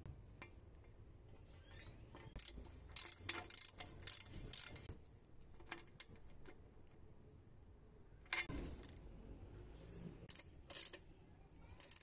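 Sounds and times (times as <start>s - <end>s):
metallic clicks and scrapes of threading: 2.1s - 5.0s, 10.2s - 11.1s, 11.8s - 12.0s.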